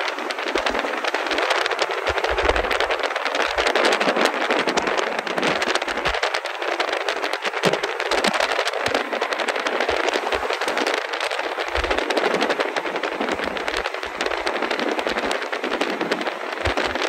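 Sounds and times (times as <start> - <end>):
car wind and road noise: 0.0 - 17.0
quick crackling: 0.0 - 17.0.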